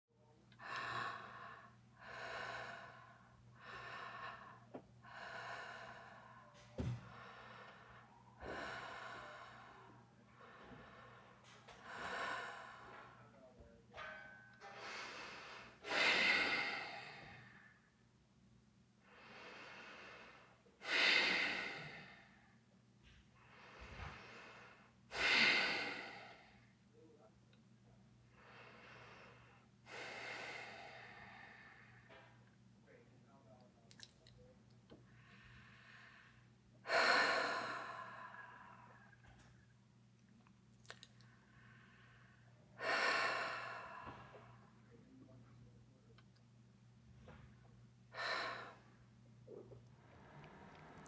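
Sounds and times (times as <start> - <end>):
low steady hum: 0.2 - 51.0
woman breathing heavily: 0.5 - 18.1, 19.0 - 26.9, 28.2 - 32.6, 34.9 - 39.8, 40.9 - 45.2, 47.2 - 51.0
woman gasping: 48.1 - 48.8.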